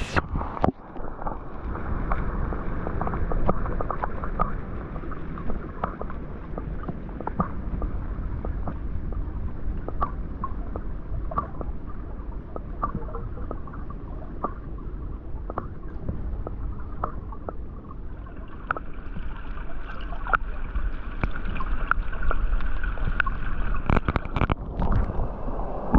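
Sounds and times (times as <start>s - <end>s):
underwater rumble of moving water: 0.0s - 25.9s
sharp underwater clicks: 2.9s - 4.6s, 5.5s - 12.0s, 12.6s - 14.8s, 15.4s - 17.6s, 20.0s - 20.4s, 21.2s - 25.1s.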